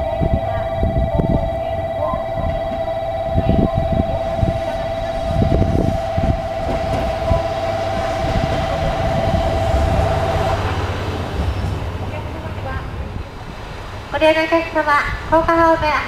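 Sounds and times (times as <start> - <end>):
steady warbling tone: 0.0 - 15.1
diesel railcar engine running: 0.0 - 16.0
wheels knocking over rail joints: 4.4 - 13.2.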